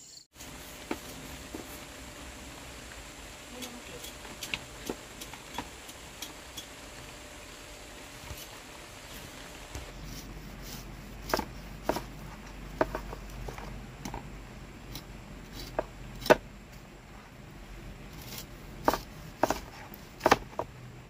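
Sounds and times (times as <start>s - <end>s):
cleaver cutting pineapple rind: 9.7s - 13.6s, 14.8s - 16.4s, 18.1s - 20.7s.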